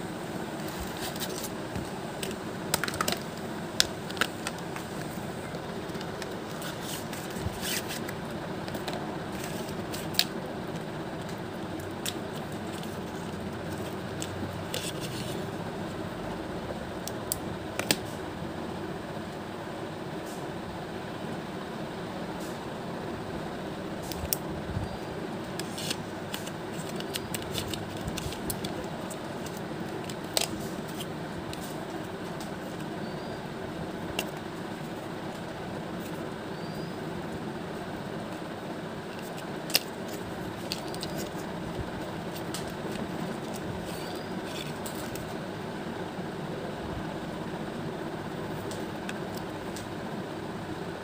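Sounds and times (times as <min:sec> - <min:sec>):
room hum: 0:00.0 - 0:51.0
clicks and taps of packaging: 0:01.8 - 0:05.0.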